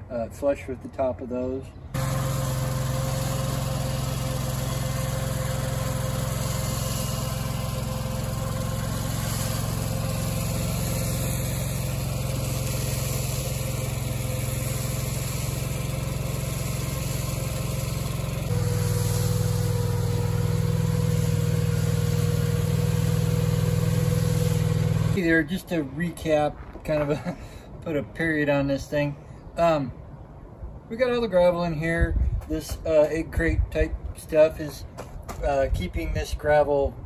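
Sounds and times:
loader engine running: 1.9 - 25.2.

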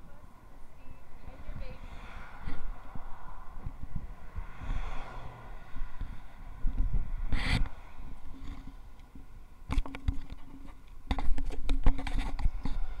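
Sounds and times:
finger rubbing on camera: 7.3 - 7.7
scrapes and clicks: 9.7 - 13.0.

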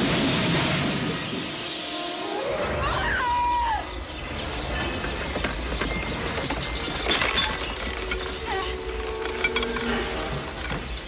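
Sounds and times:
sparrows chirping and clicking: 3.9 - 11.0.

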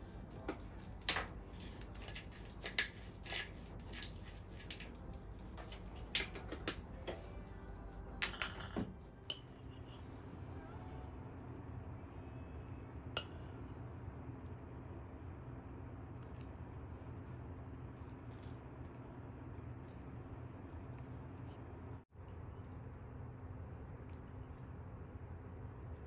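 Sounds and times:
low steady hum: 0.0 - 26.0
pepper mill twisting: 0.2 - 7.9
knife and fork on a plate: 0.3 - 7.4.

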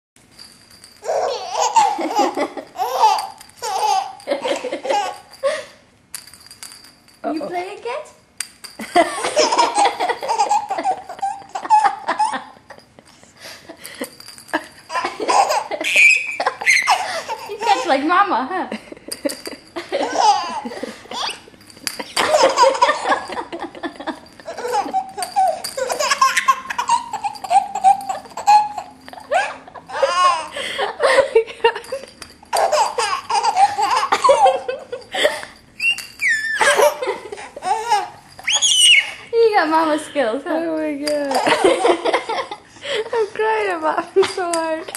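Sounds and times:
baby laughing: 1.0 - 5.3, 9.2 - 12.6, 14.9 - 18.0, 20.0 - 21.5, 22.2 - 23.3, 24.4 - 30.6, 32.5 - 34.9, 35.8 - 39.2
woman laughing: 1.9 - 2.8, 8.8 - 13.0, 14.6 - 18.0, 18.7 - 21.3, 22.0 - 25.2, 29.0 - 32.1, 33.8 - 35.6, 36.6 - 37.9, 41.2 - 43.3
high-pitched squeals: 35.8 - 36.7, 38.4 - 39.3.

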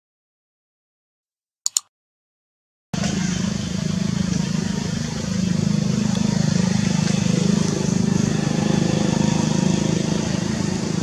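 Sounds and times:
mouse click sound effect: 1.7 - 1.9
outdoor background rumble: 3.0 - 11.0.

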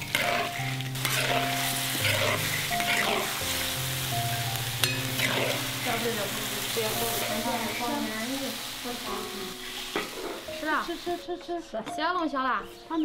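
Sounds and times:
spatula scraping a wok: 0.0 - 7.8, 9.6 - 10.5
food sizzling in a wok: 0.0 - 11.3
soft background music: 0.0 - 13.0.

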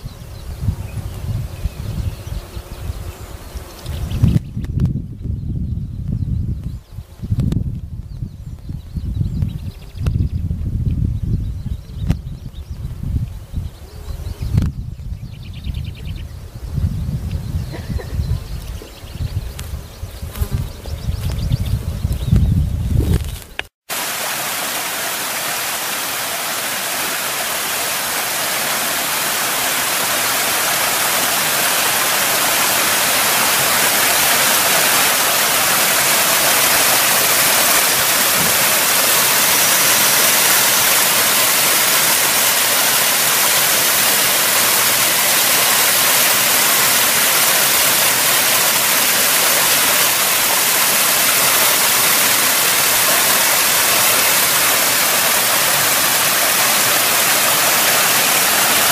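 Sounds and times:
waterfall into rock pool: 23.8 - 58.9.

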